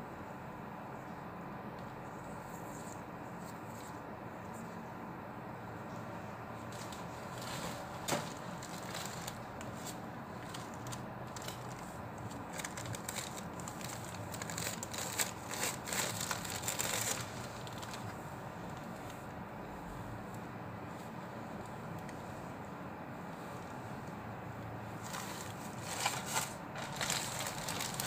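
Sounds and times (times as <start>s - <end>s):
tissue paper crinkling: 6.7s - 18.2s, 25.0s - 28.0s.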